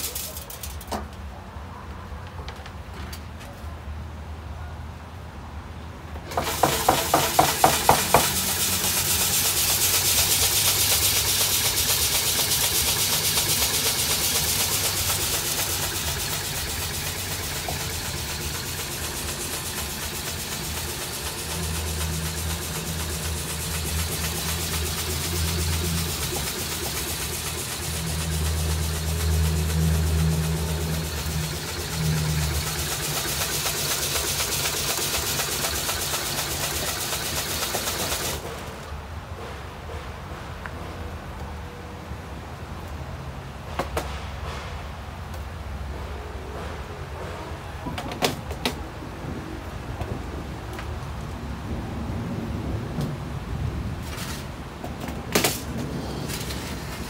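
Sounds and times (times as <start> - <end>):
beans rattling on metal screens: 0.0 - 1.0, 6.3 - 38.8
low machine hum: 10.2 - 36.8.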